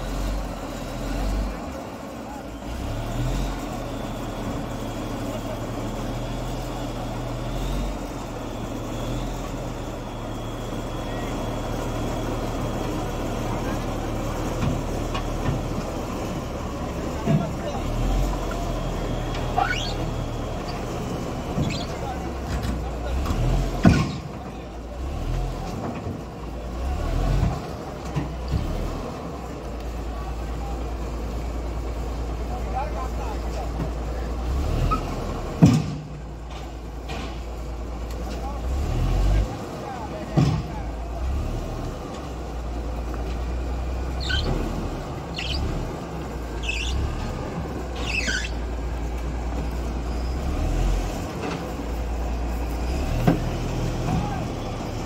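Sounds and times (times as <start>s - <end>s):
bulldozer diesel engine rumbling: 0.0s - 55.0s
short high squeals: 19.4s - 20.8s, 21.6s - 22.2s, 44.1s - 44.7s, 45.3s - 45.8s, 46.5s - 47.2s, 47.9s - 48.7s
knocks from tracks and trailer: 23.8s - 24.4s, 35.5s - 37.6s, 40.3s - 40.9s.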